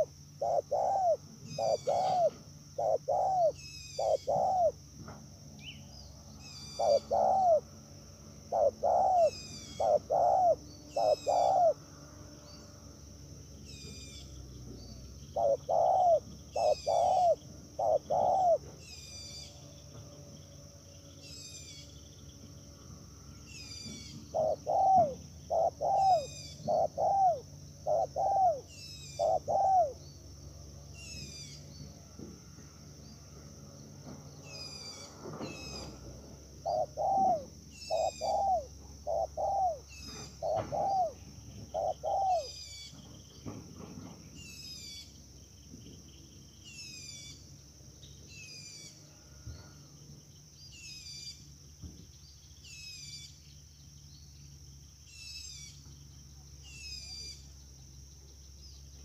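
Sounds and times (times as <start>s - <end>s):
dove cooing: 0.0s - 4.8s, 6.3s - 11.9s, 15.3s - 19.6s, 23.6s - 30.0s, 34.5s - 42.9s
bird chirping: 0.0s - 59.0s
high insect drone: 0.0s - 59.0s.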